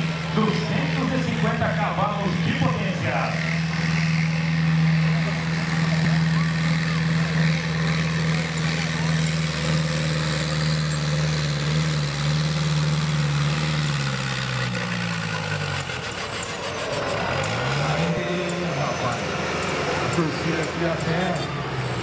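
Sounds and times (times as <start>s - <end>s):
tractor diesel engine at full power: 0.0s - 22.0s.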